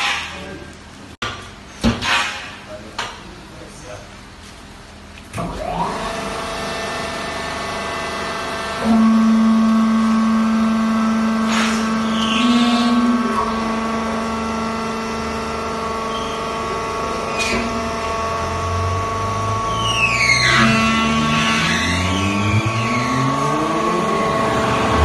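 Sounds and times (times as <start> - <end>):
hydraulic pump motor whine: 5.4 - 25.0.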